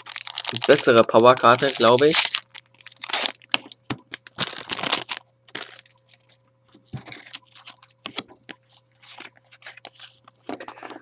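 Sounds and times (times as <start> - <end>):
plastic wrapper crinkling: 0.0 - 6.4, 7.0 - 11.0
trading cards being handled: 0.5 - 2.3.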